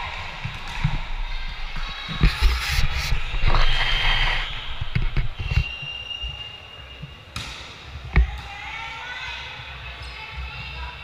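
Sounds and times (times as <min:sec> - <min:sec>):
shoe squeak on floor: 0:02.2 - 0:07.3.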